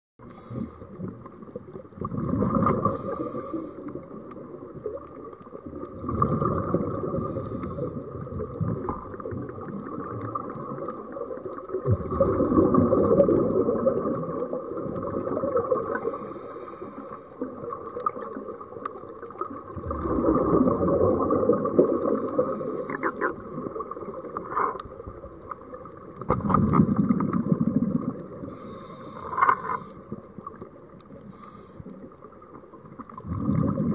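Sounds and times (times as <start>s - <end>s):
scuba regulator inhale hiss: 0.2s - 1.0s, 2.7s - 4.0s, 7.0s - 8.1s, 15.9s - 17.4s, 21.8s - 23.3s, 28.4s - 30.1s, 31.2s - 32.1s
exhaled air bubbling underwater: 0.2s - 33.9s.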